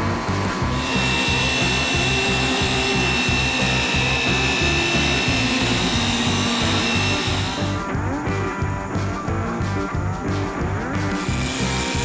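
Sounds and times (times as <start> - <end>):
orbital polisher whining: 0.0 - 7.8, 11.2 - 12.0
background music with a beat: 0.0 - 12.0.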